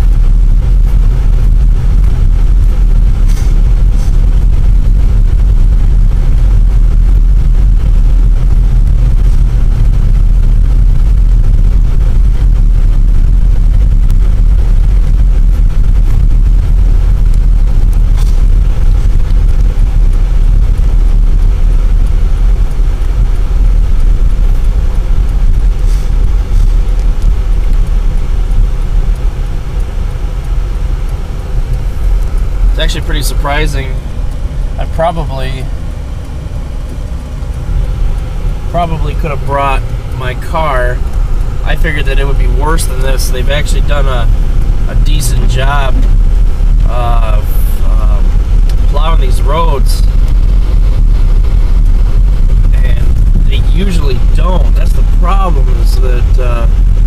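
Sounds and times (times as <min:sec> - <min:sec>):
tyres rumbling on snowy road: 0:00.0 - 0:57.0.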